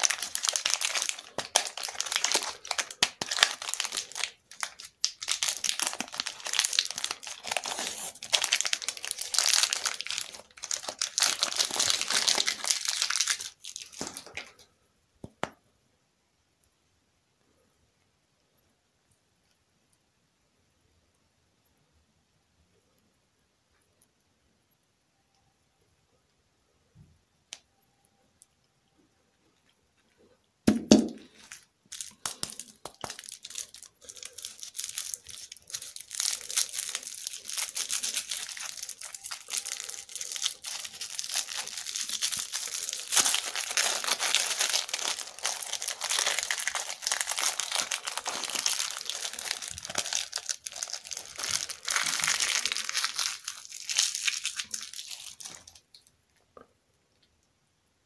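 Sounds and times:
plastic wrapper crinkling: 0.0 - 15.4, 29.6 - 56.1.

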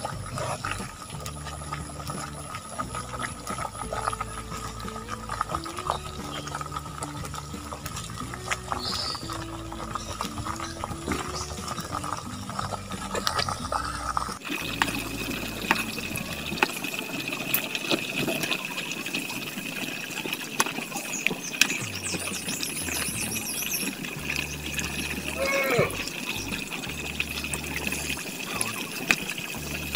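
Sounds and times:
oil bubbling and sizzling: 0.0 - 29.9
wood fire crackling: 0.0 - 29.9.

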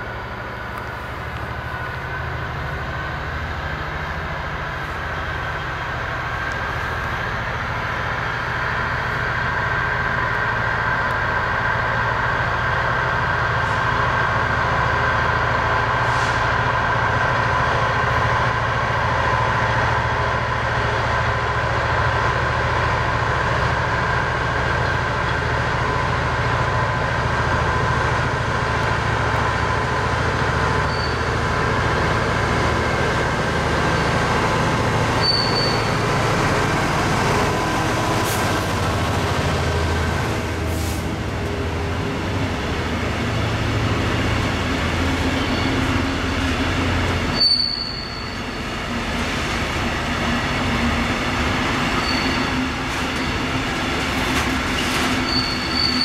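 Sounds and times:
diesel locomotive engine: 0.0 - 56.0
train wheels rumbling on rail: 0.0 - 56.0
high wheel squeals: 30.6 - 31.6, 33.8 - 36.2, 45.0 - 46.5, 47.1 - 48.8, 51.8 - 56.0.

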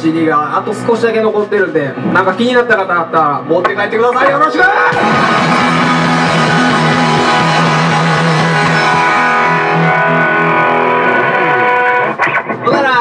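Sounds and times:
bass guitar: 3.4 - 13.0
electric guitars: 3.4 - 13.0.

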